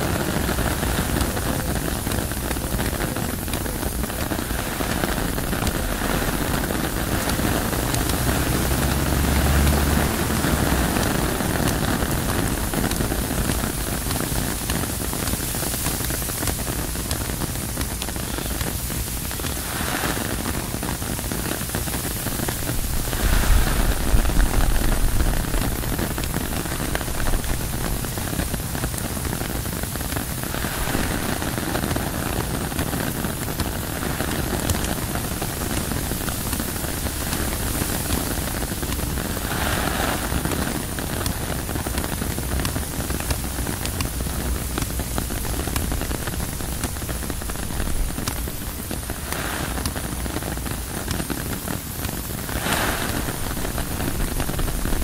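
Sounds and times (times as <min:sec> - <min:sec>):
wind gust rumble: 0:00.0 - 0:14.4, 0:15.0 - 0:41.7, 0:52.3 - 0:55.0
rain on tent fabric: 0:00.0 - 0:55.0.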